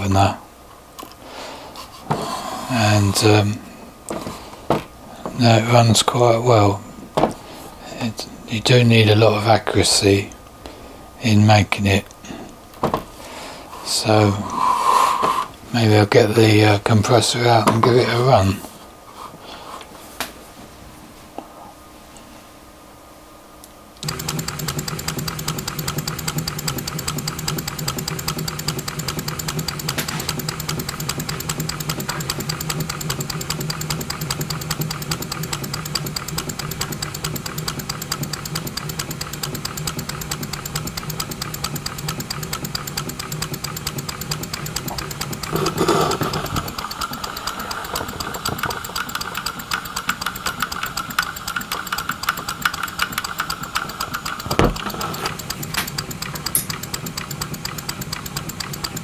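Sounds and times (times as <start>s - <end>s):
steady low hum: 0.0s - 59.0s
mechanical clatter: 24.0s - 59.0s
model engine exhaust beats: 24.0s - 59.0s.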